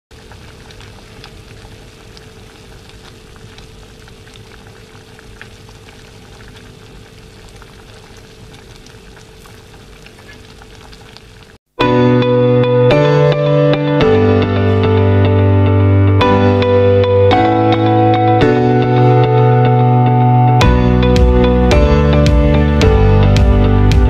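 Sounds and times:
water boiling in a pot: 0:00.1 - 0:11.6
faint steady hum: 0:00.2 - 0:11.6.

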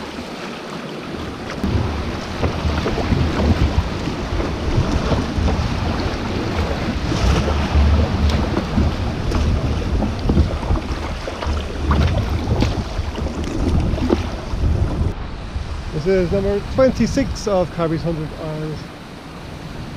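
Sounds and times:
water sloshing and splashing: 0:00.0 - 0:15.2
wind buffeting microphone: 0:01.1 - 0:19.9.

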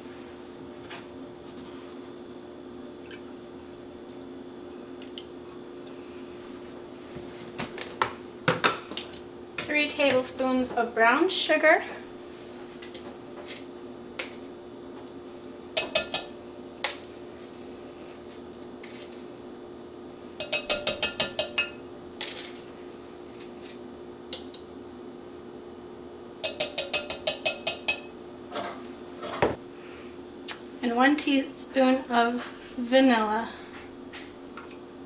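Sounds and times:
spoon tapping glass jug rim: 0:15.8 - 0:16.4, 0:20.4 - 0:21.8, 0:26.4 - 0:28.1.

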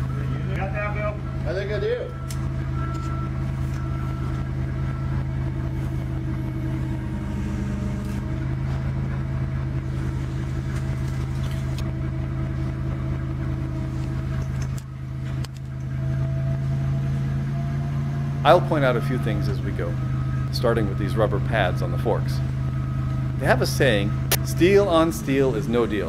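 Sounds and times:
forklift engine humming: 0:00.0 - 0:26.0.

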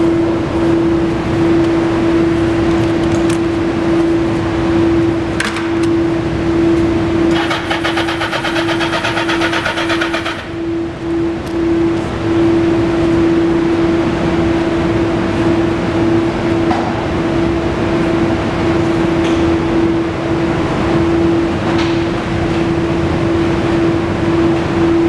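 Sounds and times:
harsh fast rattling: 0:07.4 - 0:10.5.

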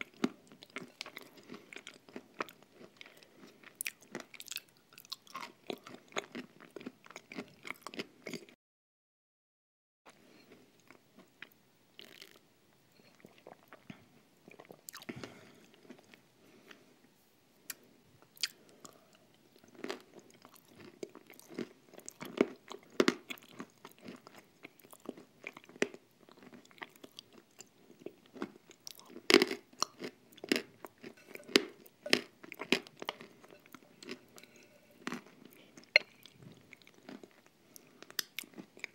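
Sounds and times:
crunchy chewing: 0:00.0 - 0:08.5, 0:18.4 - 0:38.9.

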